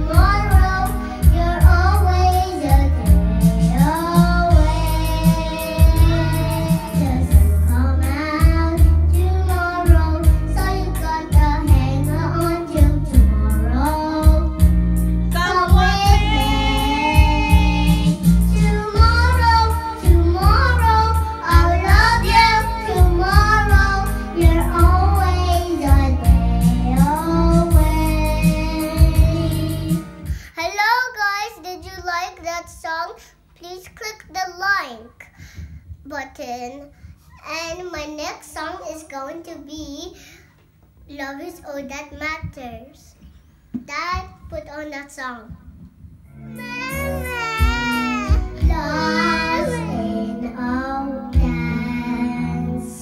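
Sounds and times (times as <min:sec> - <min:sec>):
karaoke backing music: 0:00.0 - 0:30.6, 0:45.5 - 0:53.0
girl singing: 0:00.0 - 0:36.2, 0:46.5 - 0:53.0.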